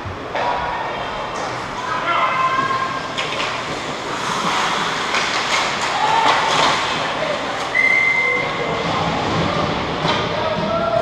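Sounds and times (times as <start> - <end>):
echoing rink rumble: 0.0 - 11.0
hockey sticks clacking: 1.3 - 11.0
skates scraping ice: 1.5 - 11.0
players shouting: 5.8 - 8.7.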